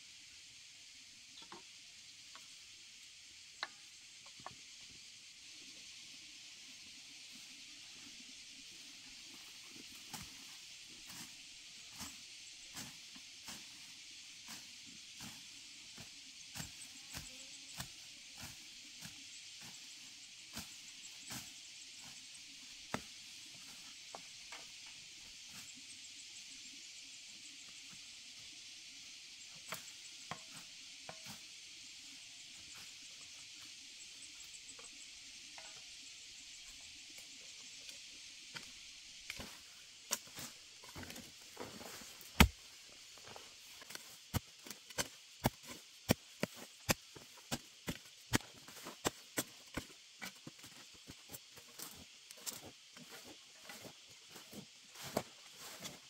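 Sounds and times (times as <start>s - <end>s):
steady high hiss: 0.0s - 56.0s
hoe chopping into soil: 40.1s - 42.6s, 43.8s - 50.4s.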